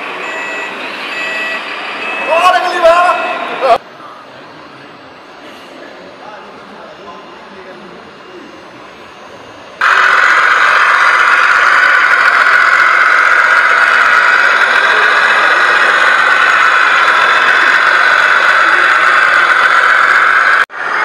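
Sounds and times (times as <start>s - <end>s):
toy truck motor whining: 9.8s - 21.0s.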